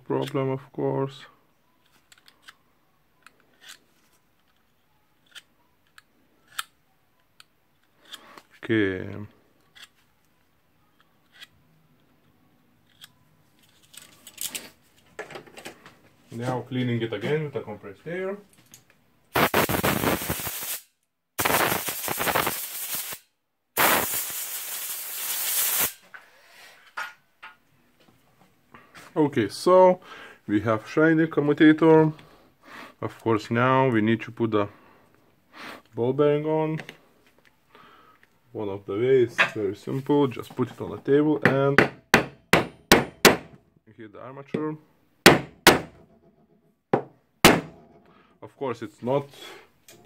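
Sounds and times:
compressed air blasting: 19.4 - 20.8, 21.4 - 23.2, 23.8 - 26.0.

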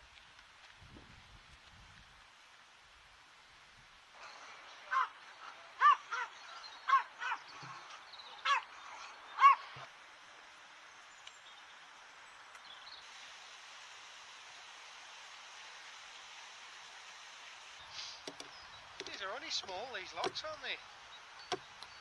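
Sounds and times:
sharp animal calls: 4.2 - 9.9.

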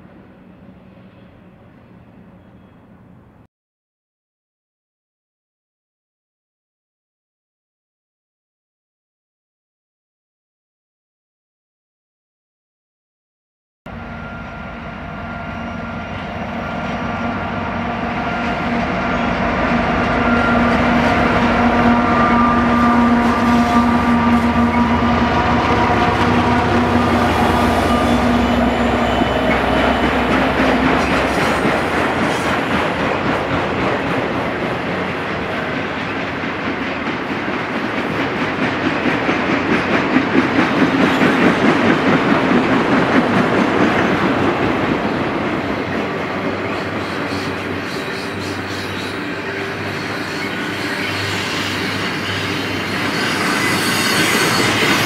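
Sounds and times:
diesel locomotive engine drone: 0.0 - 3.5, 13.9 - 55.0
train wheels clicking over rail joints: 29.4 - 49.2.

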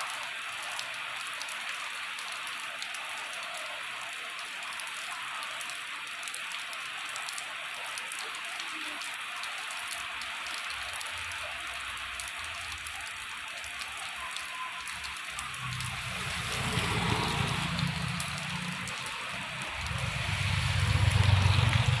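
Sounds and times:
rain on asphalt and foliage: 0.0 - 22.0
vehicle engine hum: 15.4 - 22.0
motorbike engine approaching: 16.0 - 18.8, 19.8 - 22.0.

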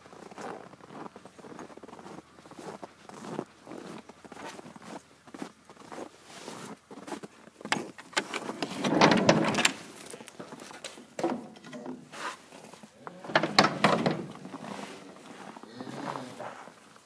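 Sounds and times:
sliding barn door rattling and scraping: 7.7 - 15.1.

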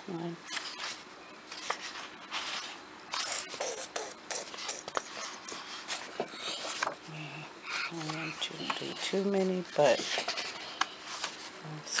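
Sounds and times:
paper pages rustling: 0.5 - 3.5, 4.5 - 7.0, 7.9 - 12.0
sharp paper ticks: 0.5 - 7.0.

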